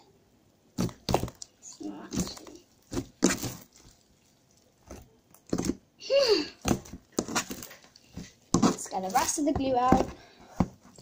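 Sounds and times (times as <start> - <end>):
slime clicking and smacking: 0.7 - 5.9.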